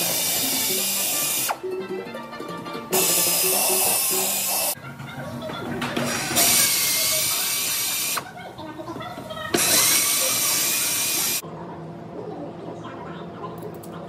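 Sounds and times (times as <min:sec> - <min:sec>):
pneumatic drill on steel: 0:02.9 - 0:04.8, 0:06.0 - 0:08.2, 0:09.6 - 0:11.4.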